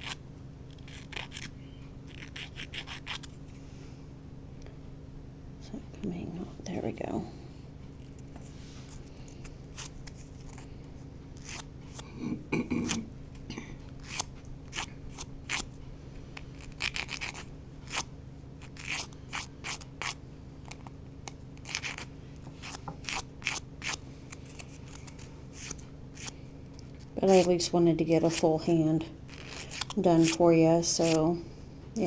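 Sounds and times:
nail file rasping: 0.0 - 1.5, 2.1 - 3.4, 11.4 - 12.0, 14.0 - 15.7, 16.4 - 20.9, 21.6 - 26.4, 27.3 - 27.6, 29.3 - 31.3.

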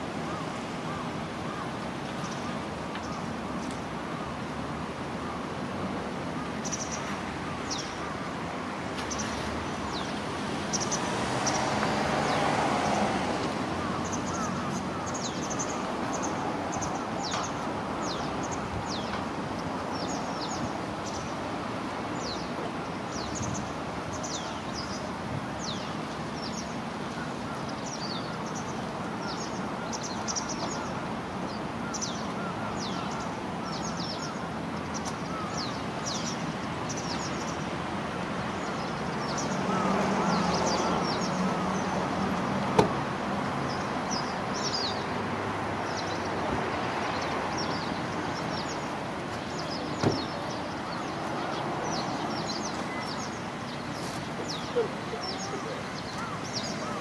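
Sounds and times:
wagtails calling: 45.8 - 57.0.

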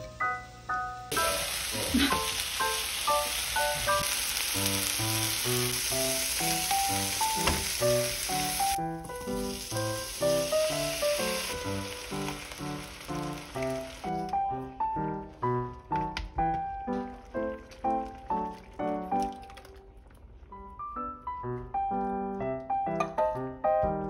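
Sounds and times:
onion sizzling in a frying pan: 1.1 - 15.0
light music with plucked notes: 20.5 - 24.0.

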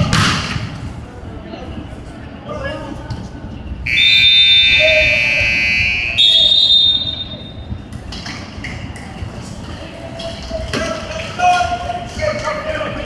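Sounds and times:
faint crowd noise: 0.0 - 13.0
electronic arena buzzer: 3.9 - 7.3.

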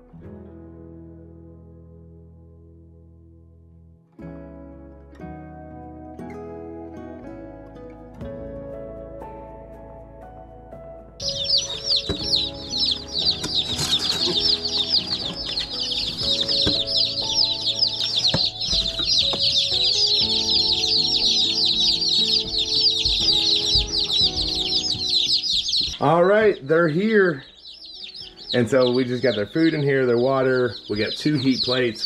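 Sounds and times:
soft background music: 0.0 - 32.0
chicks peeping: 11.2 - 32.0.

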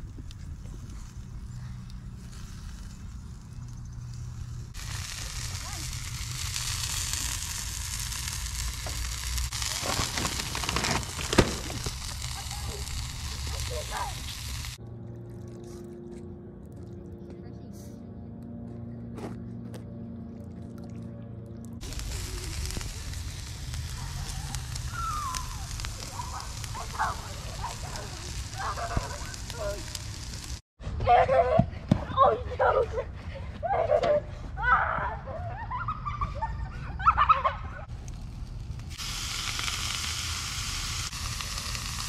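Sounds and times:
chicken sizzling on charcoal grill: 0.0 - 14.8, 21.8 - 30.6, 37.8 - 42.0.

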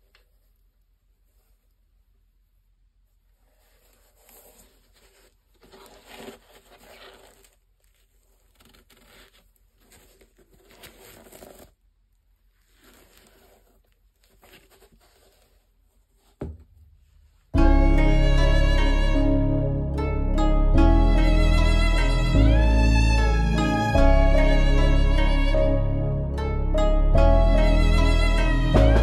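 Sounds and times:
gloved hands rustling on sneaker: 3.2 - 17.6
soft thump: 16.4 - 17.0.

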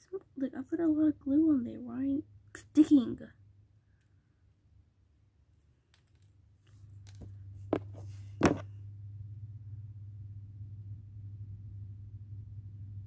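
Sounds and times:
low steady hum: 0.0 - 13.0
light clicks of craft pieces: 5.5 - 7.3.

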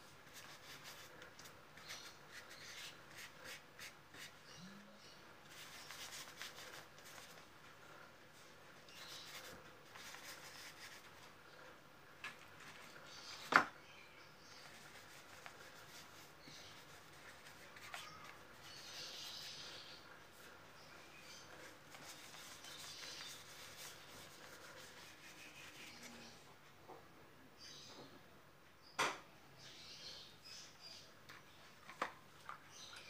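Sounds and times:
paintbrush rubbing on paper: 0.2 - 1.2, 1.8 - 4.5, 5.5 - 7.5, 8.9 - 11.3, 14.6 - 20.5, 21.2 - 26.4.

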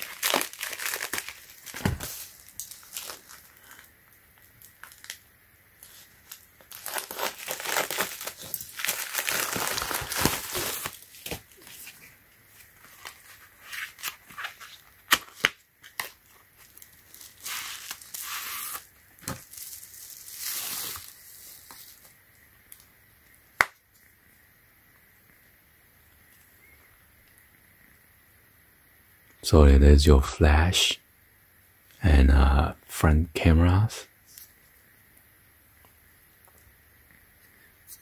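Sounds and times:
plastic rustling and crinkling: 0.0 - 5.2, 5.8 - 22.8.

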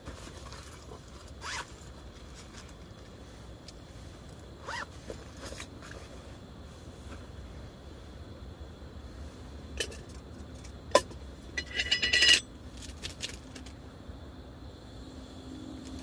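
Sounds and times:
low steady hum: 0.0 - 16.0
zipper on bag being pulled: 1.4 - 1.7, 4.6 - 4.9.

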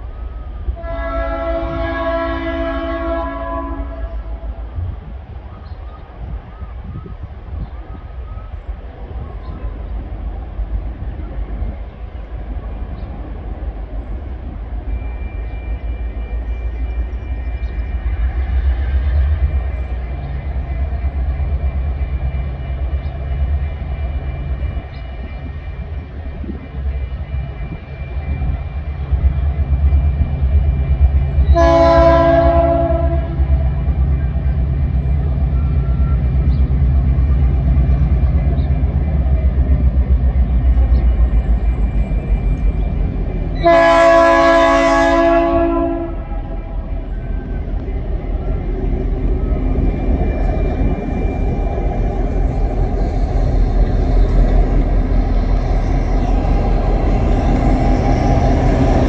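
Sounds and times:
diesel locomotive running: 0.0 - 59.0
multi-note train horn: 0.6 - 4.7, 31.4 - 33.8, 43.5 - 47.9.

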